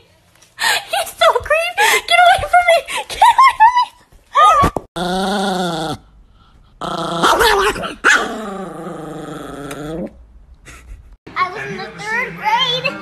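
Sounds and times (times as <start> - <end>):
small dog growling: 5.0 - 6.1, 6.8 - 10.2.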